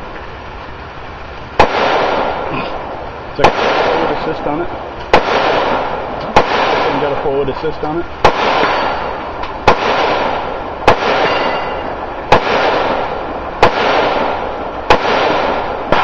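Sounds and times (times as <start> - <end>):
steady rushing noise: 0.0 - 16.0
rifle shots: 1.6 - 7.6, 8.2 - 16.0.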